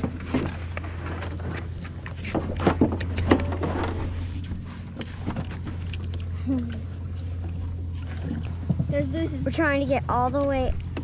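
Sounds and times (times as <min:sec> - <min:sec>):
knocks and clatter: 0:00.0 - 0:06.2
boat engine idling: 0:00.0 - 0:11.0.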